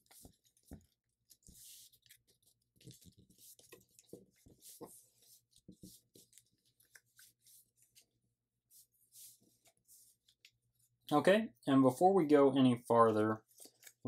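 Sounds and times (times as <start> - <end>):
paper rustling and crinkling: 0.0 - 10.6.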